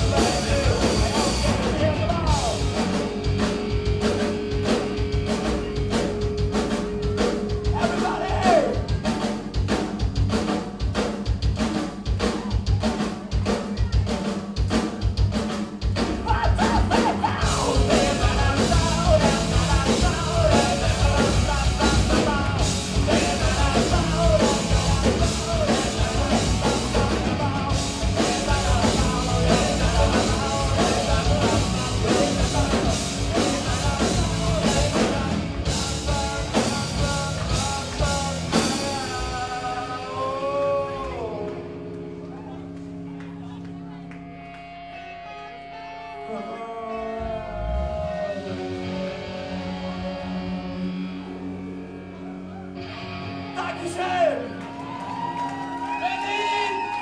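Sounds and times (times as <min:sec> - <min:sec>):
man singing and shouting: 0:00.0 - 0:03.0, 0:07.6 - 0:09.4, 0:16.1 - 0:42.6, 0:45.5 - 0:50.8
live rock band playing: 0:00.0 - 0:57.0.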